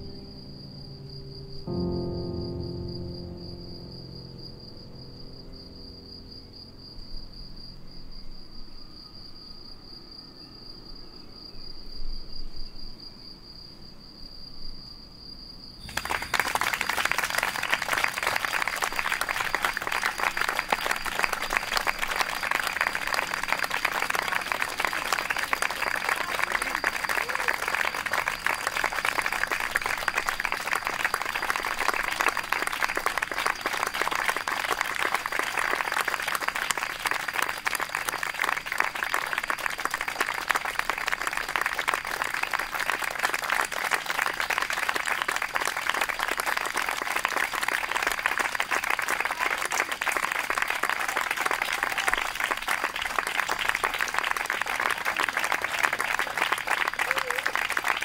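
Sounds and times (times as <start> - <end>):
audience applauding: 15.8 - 58.0.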